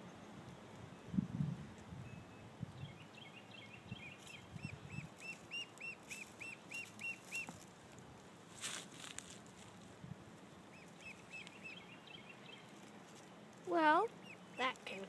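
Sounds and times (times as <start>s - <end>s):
duckling peeping: 2.9s - 7.6s, 10.7s - 12.9s, 13.8s - 15.0s.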